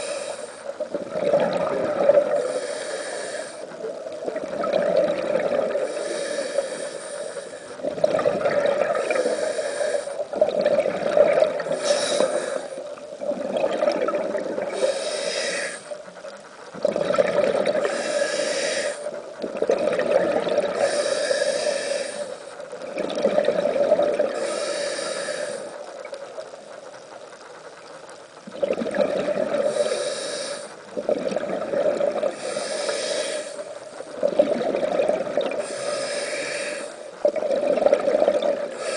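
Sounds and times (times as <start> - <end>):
regulator inhale hiss: 0.0 - 1.0, 2.2 - 4.2, 5.6 - 7.9, 8.8 - 10.4, 11.6 - 13.0, 14.6 - 16.4, 17.8 - 19.4, 20.6 - 22.8, 23.6 - 27.2, 29.6 - 31.0, 32.3 - 34.3, 35.5 - 37.2, 38.6 - 38.9
exhaled bubbles gurgling: 0.0 - 38.9.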